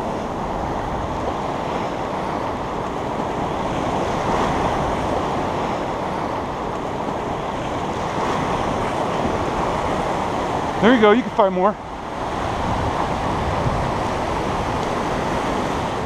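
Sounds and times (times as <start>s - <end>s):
ocean surf washing on beach: 0.0s - 16.0s
wind noise on microphone: 11.8s - 16.0s.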